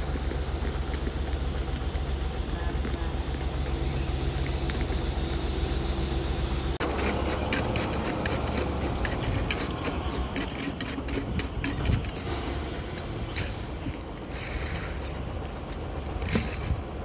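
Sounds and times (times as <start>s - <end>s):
diesel engine humming: 0.0s - 17.0s
steel rod tamping concrete: 6.7s - 16.8s.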